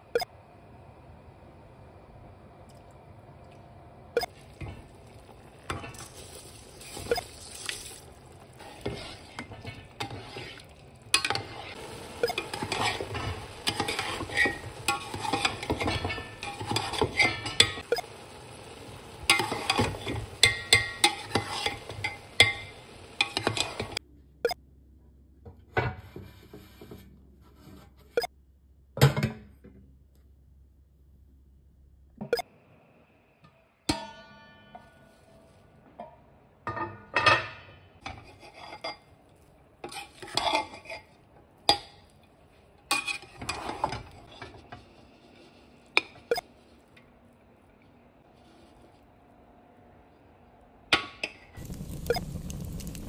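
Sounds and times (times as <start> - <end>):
metal spoon scraping a pot: 8.6 - 17.8, 19.3 - 24.0, 38.0 - 39.2, 39.8 - 42.0, 42.9 - 46.2.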